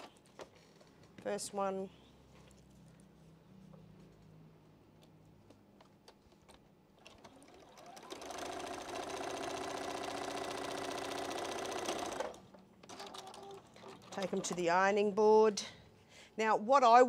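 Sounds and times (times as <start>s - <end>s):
sewing machine stitching: 7.0s - 14.6s.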